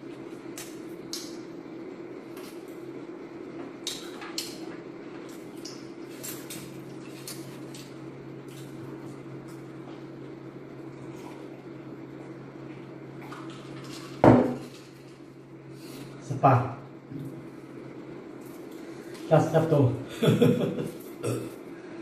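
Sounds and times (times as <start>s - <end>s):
steady low hum: 0.0s - 22.0s
crunchy food chewing: 3.8s - 10.3s.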